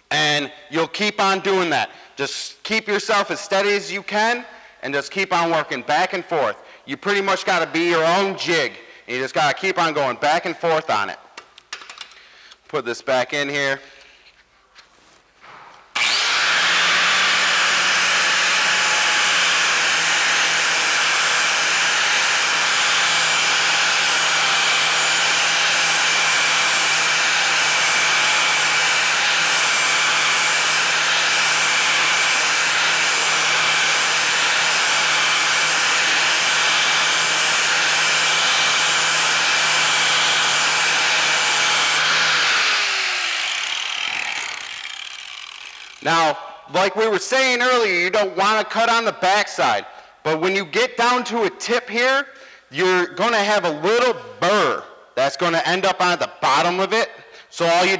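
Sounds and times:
angle grinder grinding steel: 16.0s - 46.1s
grinder winding down: 16.0s - 46.1s.

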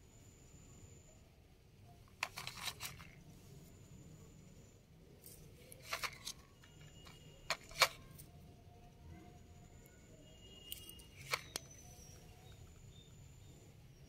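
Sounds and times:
rustling from handling: 2.2s - 3.2s, 5.2s - 8.0s.

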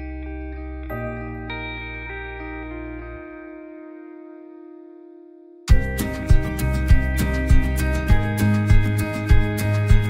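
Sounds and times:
music with steady beat: 5.7s - 10.0s.

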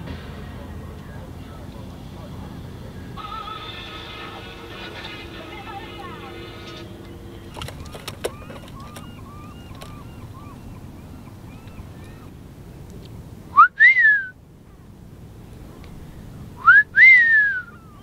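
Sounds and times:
gull calling: 1.0s - 12.4s, 16.6s - 18.0s
bird chirping: 2.9s - 12.4s, 17.6s - 18.0s.

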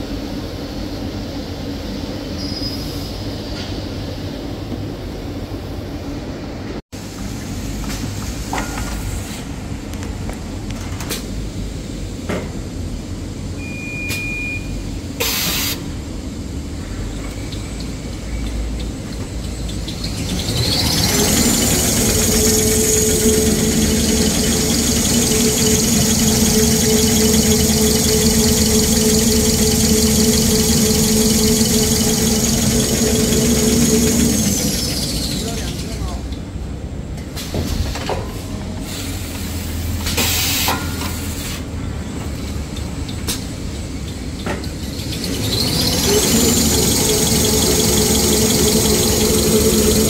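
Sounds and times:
machine rumble: 18.8s - 36.3s, 44.8s - 50.0s
machine high whine: 19.6s - 36.3s, 44.9s - 50.0s.

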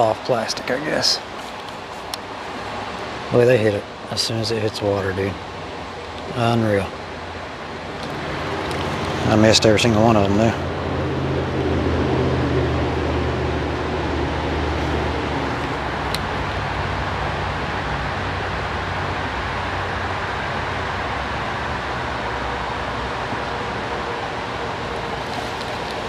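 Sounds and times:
creek water rushing: 0.0s - 26.0s.

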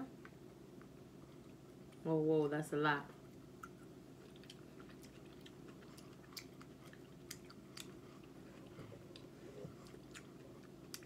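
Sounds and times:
low steady hum: 0.0s - 11.0s
mouth chewing soft fruit: 3.2s - 11.0s.

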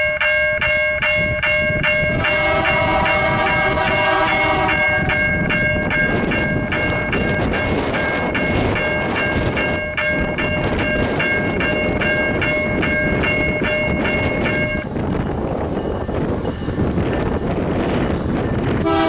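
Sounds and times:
freight train rumbling: 0.0s - 19.0s
railroad bell dinging: 0.0s - 19.0s.

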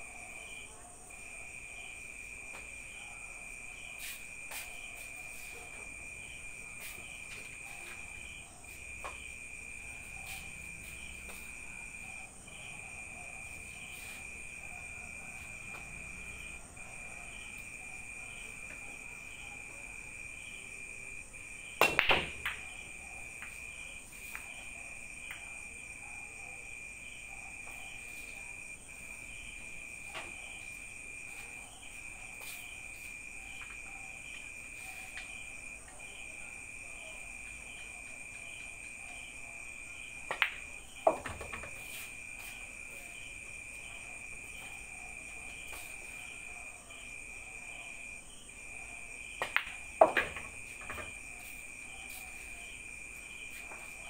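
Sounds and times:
cue striking ball: 21.8s - 22.6s
pool balls clattering: 21.8s - 22.7s, 40.3s - 42.0s, 49.4s - 51.5s.

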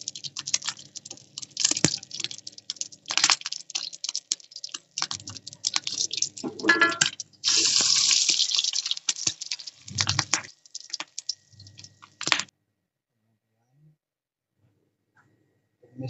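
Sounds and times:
loud steady sizzle: 0.0s - 12.5s
oil crackling and popping: 0.0s - 12.5s.

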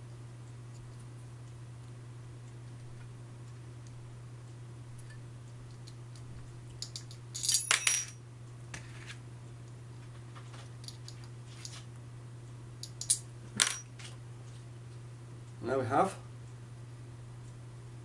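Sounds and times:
metal tool clinking: 6.8s - 8.2s.

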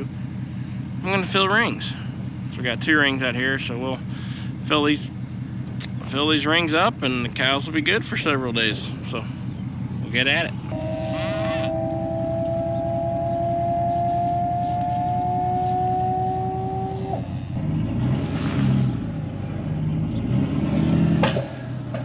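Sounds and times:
truck engine idling: 0.0s - 20.4s
steady whine: 10.0s - 17.6s.

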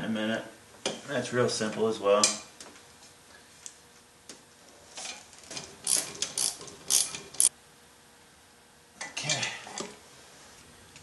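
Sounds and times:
ratchet wrench clicking: 5.9s - 7.5s.

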